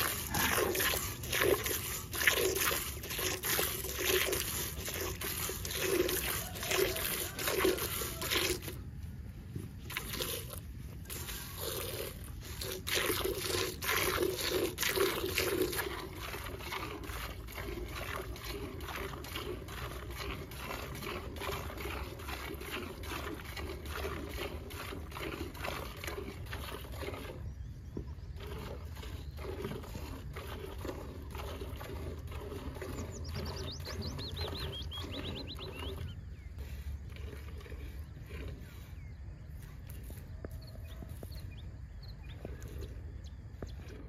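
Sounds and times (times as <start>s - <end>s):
milk squirting into metal pail: 0.0s - 8.8s, 9.8s - 27.4s.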